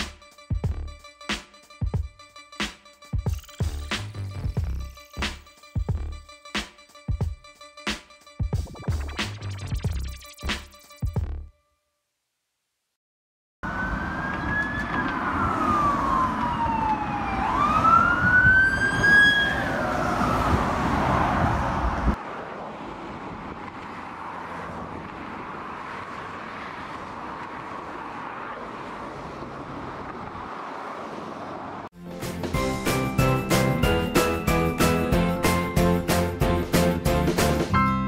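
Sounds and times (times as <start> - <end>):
emergency siren wailing: 13.6 - 22.2
city traffic noise: 13.6 - 38.0.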